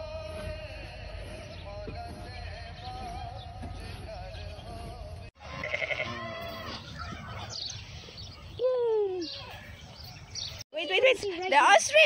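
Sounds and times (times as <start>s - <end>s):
sheep bleating: 5.4s - 6.8s.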